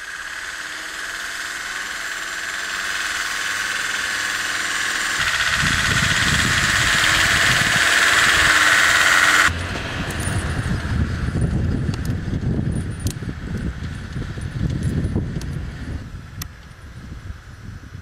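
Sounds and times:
car engine driving through snow: 8.7 - 12.5
low uneven rumble: 9.5 - 18.0.

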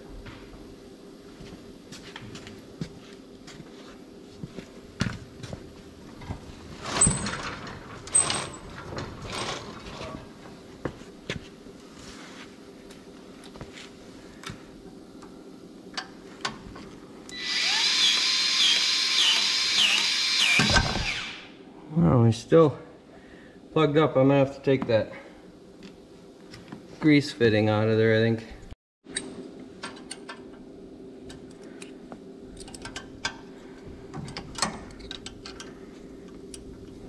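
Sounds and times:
grease gun motor whining: 17.3 - 21.4.

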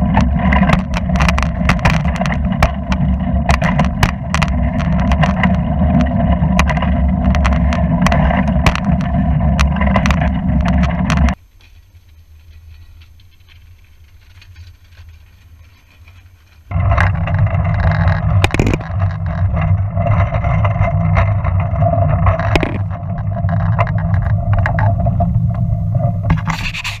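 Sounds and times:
wheels rumbling on rails: 0.0 - 26.6
sharp clicks: 18.2 - 19.1, 22.4 - 24.7.

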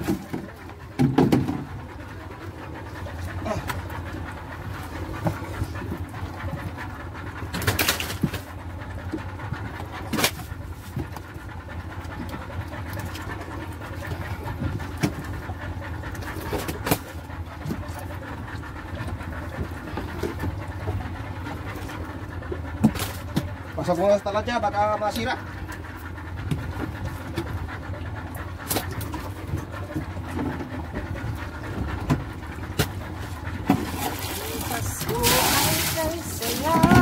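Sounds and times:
knocks and thumps on fish box: 0.0 - 1.7
steady low hum: 0.0 - 37.0.

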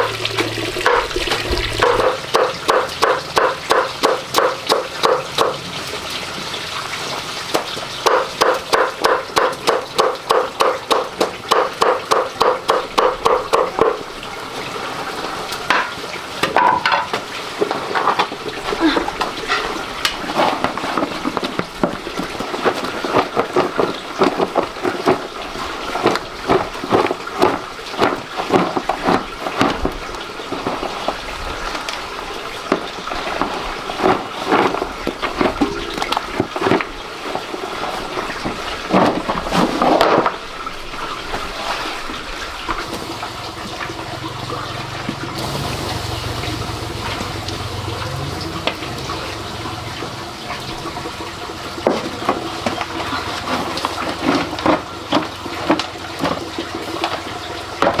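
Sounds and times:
water running and splashing: 0.0 - 58.0
knocks and clatters: 51.8 - 58.0.

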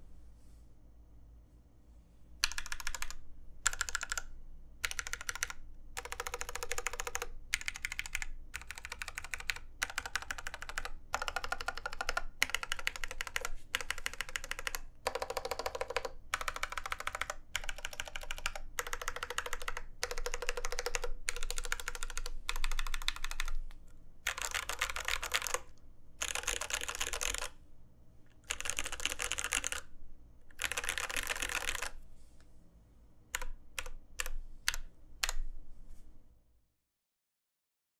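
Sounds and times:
mechanical keyboard typing: 2.4 - 27.6, 28.4 - 29.9, 30.5 - 32.0, 33.3 - 35.5.

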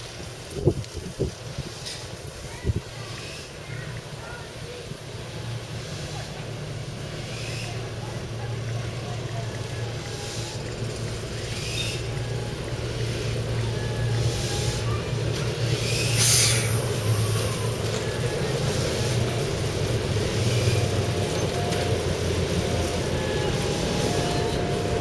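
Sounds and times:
diesel locomotive engine throbbing: 0.0 - 25.0
brief hiss: 15.6 - 16.9.

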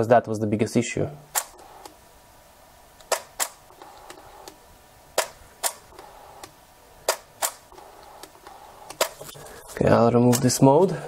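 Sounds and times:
camera shutter clicks: 7.1 - 7.6.

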